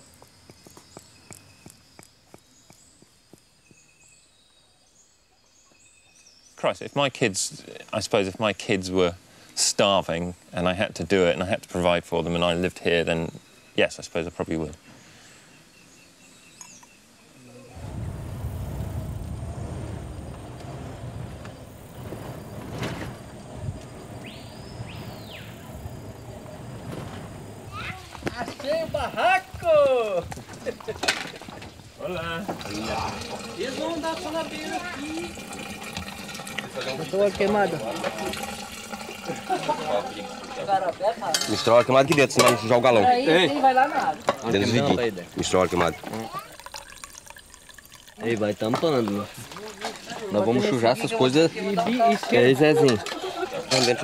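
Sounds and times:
vehicle engine and road rumble: 17.8s - 28.2s.

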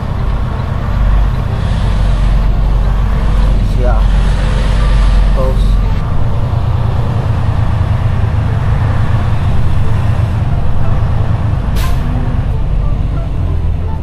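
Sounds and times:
diesel truck engine running: 0.0s - 14.0s
air brake hiss: 11.8s - 12.2s.

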